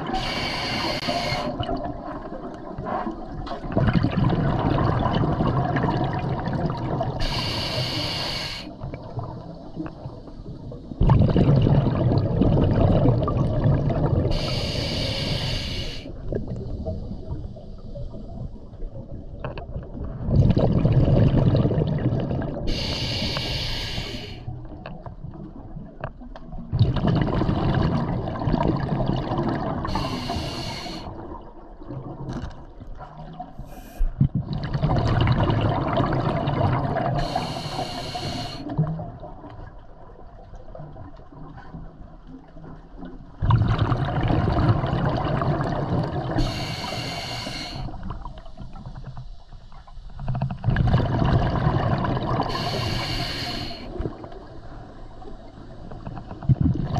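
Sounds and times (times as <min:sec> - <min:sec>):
regulator hiss on inhale: 0:00.0 - 0:01.6, 0:07.2 - 0:08.8, 0:14.3 - 0:16.2, 0:22.7 - 0:24.5, 0:29.9 - 0:31.2, 0:33.6 - 0:34.2, 0:37.2 - 0:38.7, 0:46.4 - 0:48.1, 0:52.5 - 0:54.0
gurgling exhaled bubbles: 0:00.0 - 0:08.0, 0:08.8 - 0:15.4, 0:16.2 - 0:26.0, 0:26.6 - 0:49.1, 0:50.1 - 0:56.9.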